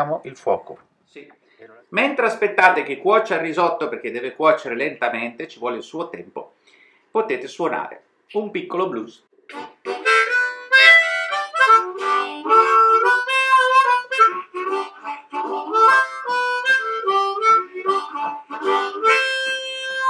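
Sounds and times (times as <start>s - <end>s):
harmonica playing blues: 9.5s - 20.0s.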